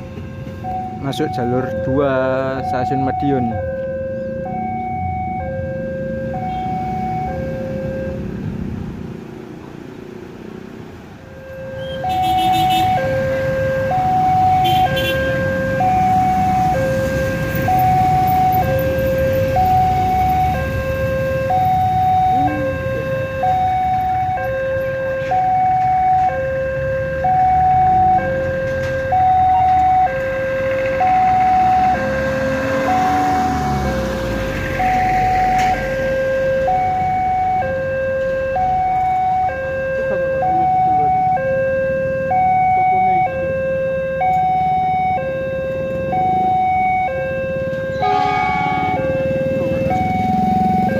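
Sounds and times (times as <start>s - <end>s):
two-tone warning alarm: 0.0s - 8.4s, 11.3s - 50.9s
diesel train rumble: 47.9s - 50.9s.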